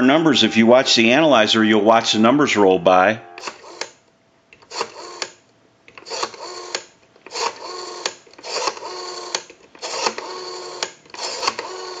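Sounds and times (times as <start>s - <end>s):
rotary telephone dial whirring: 3.4s - 4.0s, 4.6s - 5.4s, 6.0s - 12.0s.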